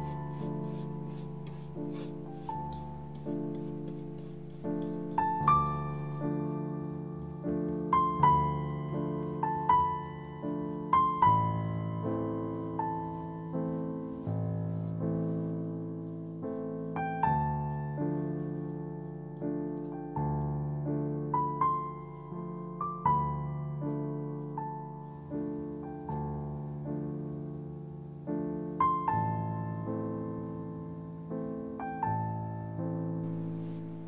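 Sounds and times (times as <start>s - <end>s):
slow gentle solo piano: 0.0s - 34.0s.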